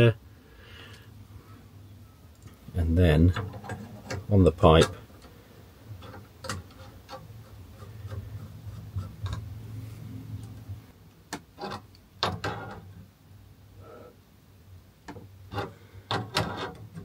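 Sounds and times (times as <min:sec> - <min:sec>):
rubbing of pipe fitting parts: 0:02.4 - 0:10.8, 0:11.4 - 0:13.0, 0:15.0 - 0:17.0
sharp clicks and knocks of parts: 0:03.2 - 0:05.4, 0:06.0 - 0:09.5, 0:10.4 - 0:13.0, 0:15.0 - 0:17.0.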